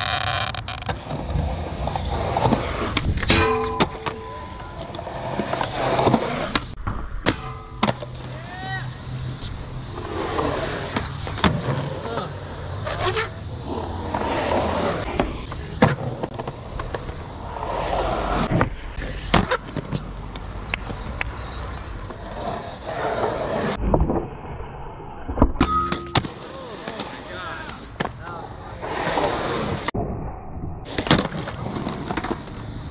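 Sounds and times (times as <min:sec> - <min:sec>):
skateboard popping and landing clacks: 0:00.0 - 0:08.4, 0:09.4 - 0:17.2, 0:18.4 - 0:21.4, 0:30.9 - 0:32.7
skateboard wheels rolling on concrete: 0:00.0 - 0:30.0, 0:30.8 - 0:32.9.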